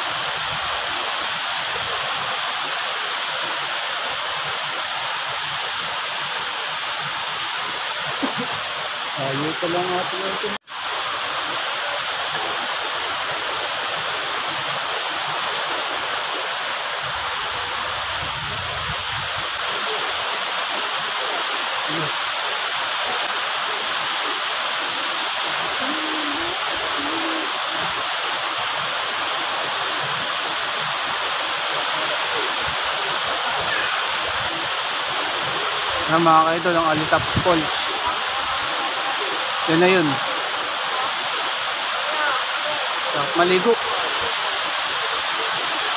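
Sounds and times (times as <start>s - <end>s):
waterfall pouring: 19.5s - 45.9s.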